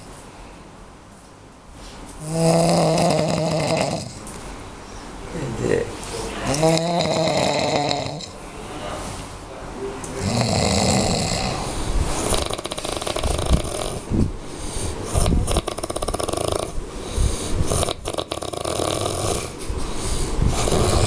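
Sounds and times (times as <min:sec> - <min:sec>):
person snoring loudly: 0:02.2 - 0:04.2, 0:06.5 - 0:08.3, 0:10.2 - 0:14.2, 0:15.1 - 0:16.8, 0:17.6 - 0:19.6, 0:20.5 - 0:21.0.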